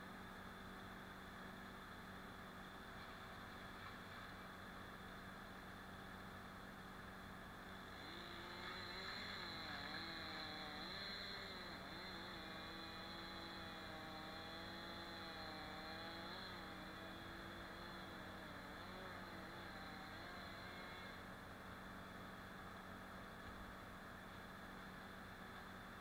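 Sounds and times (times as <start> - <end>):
chainsaw cutting wood: 7.8 - 21.3.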